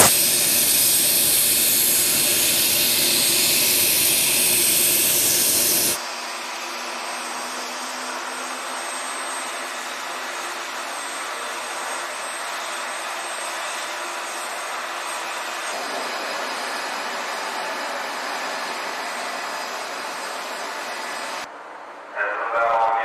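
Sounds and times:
loud jet roar: 0.0 - 2.2
jet turbine whooshing: 0.0 - 6.0.

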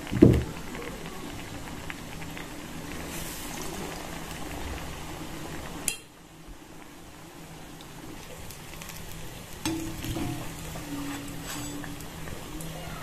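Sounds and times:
deep-frying bubbling sizzle: 0.0 - 13.0.

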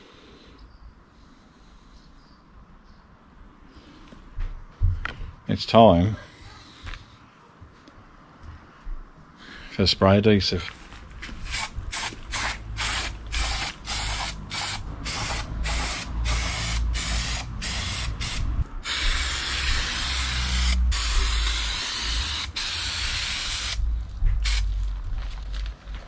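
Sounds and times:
aerosol can spraying: 11.4 - 23.8, 24.4 - 24.7.

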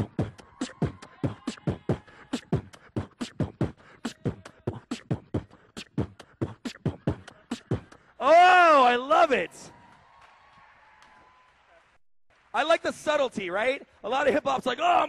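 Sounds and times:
beatboxing into a microphone: 0.0 - 8.2.

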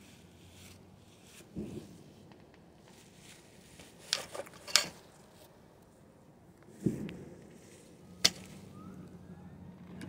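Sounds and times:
sharp clicks and rustles: 1.5 - 5.5.

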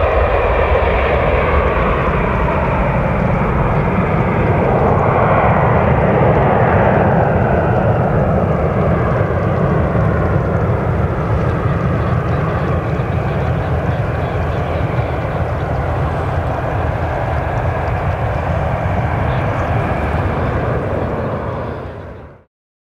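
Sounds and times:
jet engines climbing: 0.0 - 22.5.

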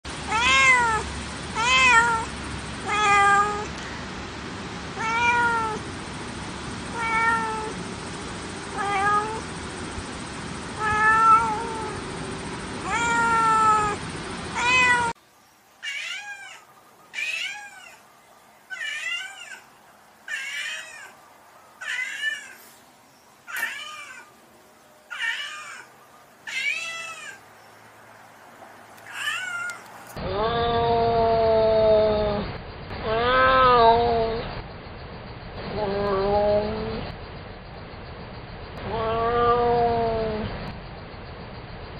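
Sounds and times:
background hiss: 0.2 - 30.2
cat meowing: 0.3 - 1.0, 1.6 - 3.7, 5.0 - 5.8, 6.9 - 7.8, 8.7 - 9.4, 10.8 - 12.0, 12.8 - 14.0, 14.6 - 15.2, 15.8 - 18.0, 18.7 - 19.7, 20.3 - 21.2, 21.8 - 22.7, 23.5 - 24.3, 25.1 - 27.4, 29.0 - 31.2, 33.0 - 34.4, 38.9 - 40.4.

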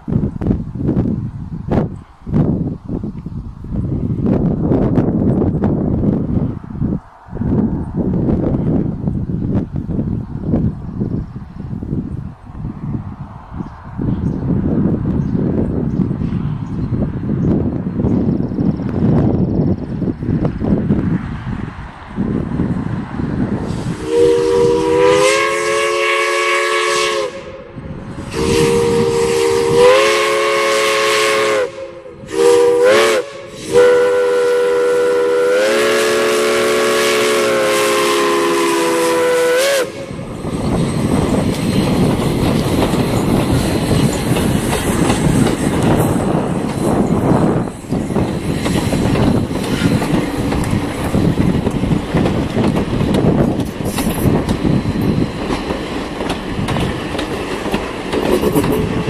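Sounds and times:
chime steam whistle blasts: 23.7 - 40.2
train wheels clattering over rails: 40.2 - 59.0.

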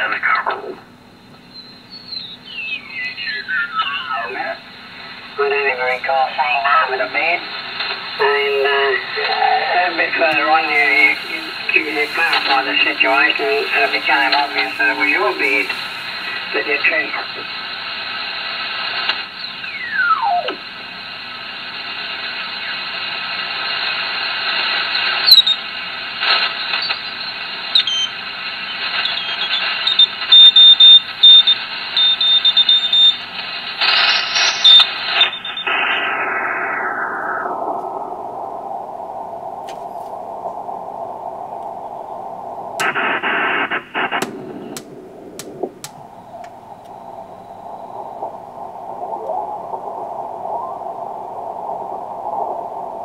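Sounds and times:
radio hiss and static: 0.0 - 1.4, 2.5 - 53.0
radio clicks: 5.4 - 19.8, 42.7 - 47.0, 47.9 - 50.7
heterodyne whistles: 28.9 - 33.2, 34.2 - 36.1.

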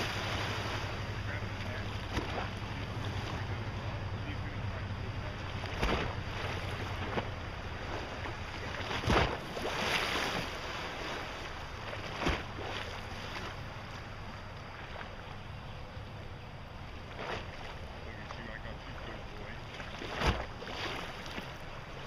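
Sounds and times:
wind rumbling on microphone: 0.0 - 16.3
river water flowing: 0.0 - 22.0.

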